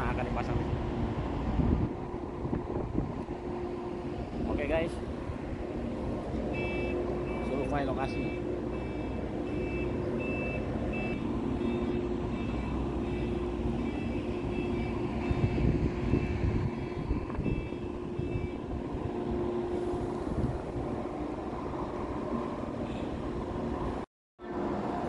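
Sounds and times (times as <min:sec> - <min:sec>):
diesel engine hum: 0:00.0 - 0:25.0
reversing alarm beeping: 0:06.5 - 0:20.1.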